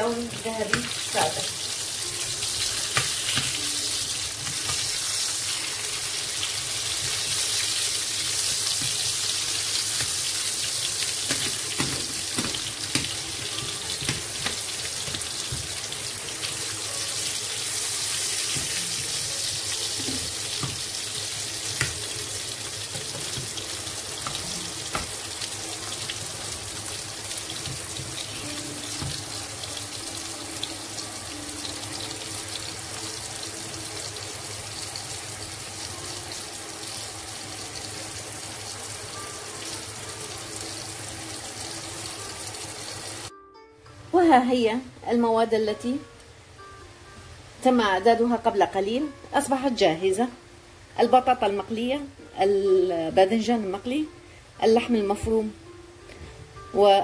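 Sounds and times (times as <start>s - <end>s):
garlic sizzling in hot oil: 0.0s - 43.3s.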